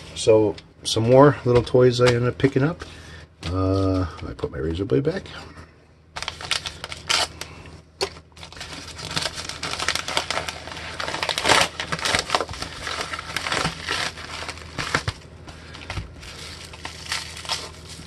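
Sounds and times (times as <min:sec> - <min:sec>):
plastic packaging crinkling: 0:06.2 - 0:18.0.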